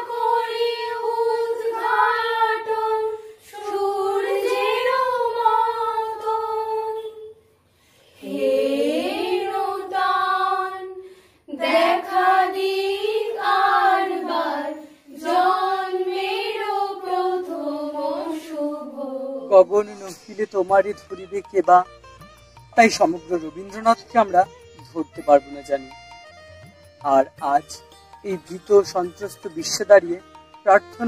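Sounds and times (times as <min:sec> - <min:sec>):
women singing together: 0:00.0 - 0:07.4, 0:08.2 - 0:19.5.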